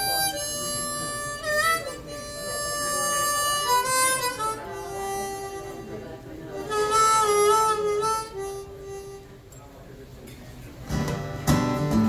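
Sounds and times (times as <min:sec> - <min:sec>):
harmonica melody: 0:00.0 - 0:09.5
acoustic guitar accompaniment: 0:00.0 - 0:09.7, 0:10.8 - 0:12.0.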